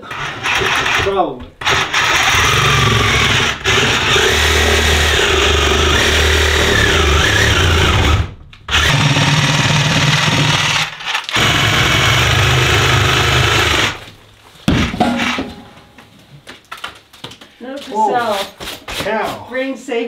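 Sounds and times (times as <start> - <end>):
electric power saw cutting: 0.0 - 14.0.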